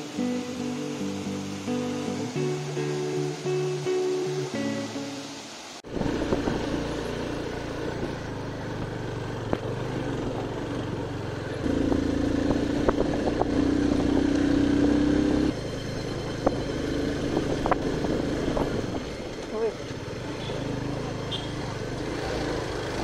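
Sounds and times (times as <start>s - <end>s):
motorcycle engine running: 5.9s - 23.0s.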